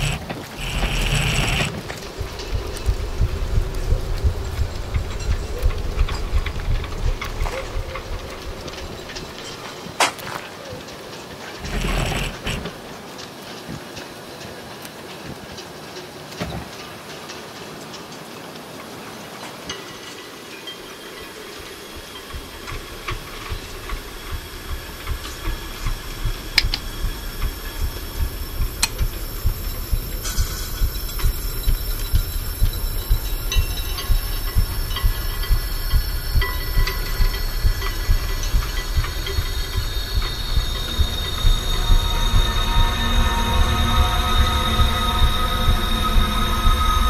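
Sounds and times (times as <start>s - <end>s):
sharp clicks: 0.0s - 7.7s, 22.2s - 42.0s
low rhythmic pounding: 0.0s - 9.9s, 21.1s - 47.0s
steady hiss: 0.0s - 47.0s.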